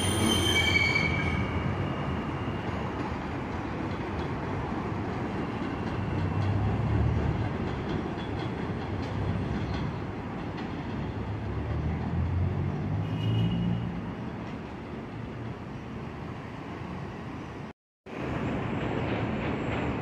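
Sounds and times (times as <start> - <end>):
high wheel squeal: 0.0 - 3.0
subway train rumble: 0.0 - 20.0.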